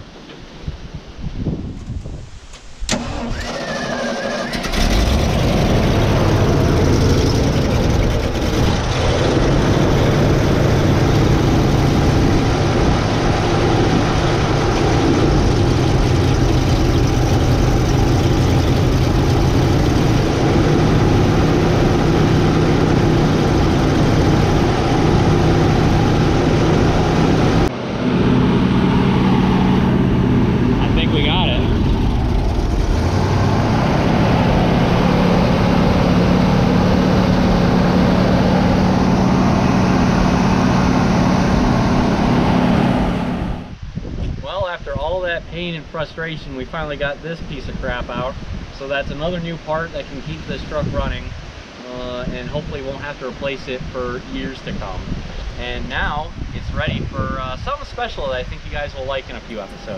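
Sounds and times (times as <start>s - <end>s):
car engine starting and running: 2.5s - 43.8s, 59.3s - 59.9s.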